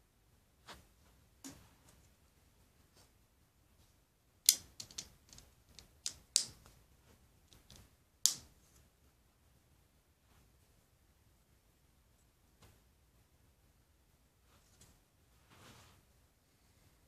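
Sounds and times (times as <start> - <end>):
plastic toy bricks clicking: 4.5 - 6.7, 7.5 - 8.4.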